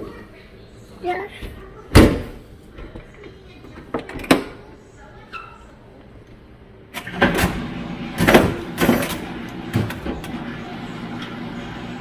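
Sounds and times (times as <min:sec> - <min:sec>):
dishwasher running hum: 0:07.0 - 0:12.0.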